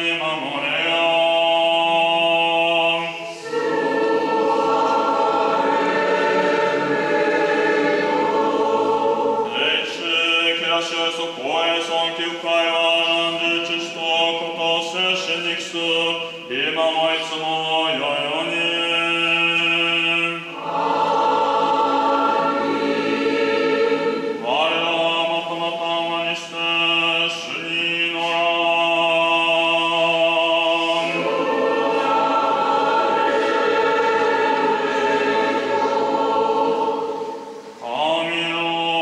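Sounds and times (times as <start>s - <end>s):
choir chanting unaccompanied: 0.0s - 39.0s.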